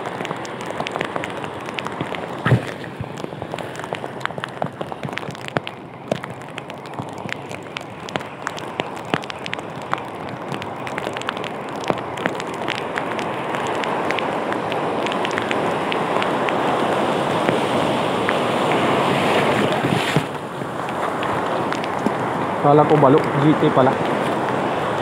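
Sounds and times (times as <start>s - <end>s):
wind buffeting microphone: 0.0s - 25.0s
sea surf breaking: 13.4s - 25.0s.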